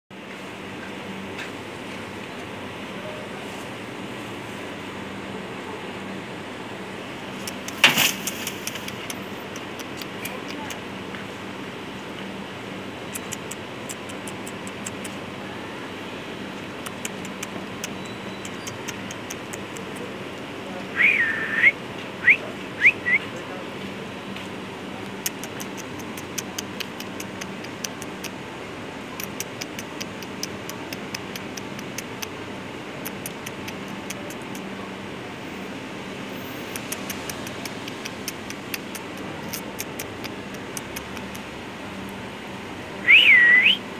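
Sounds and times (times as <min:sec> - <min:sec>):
person whistling: 0:21.0 - 0:23.2, 0:43.1 - 0:43.8.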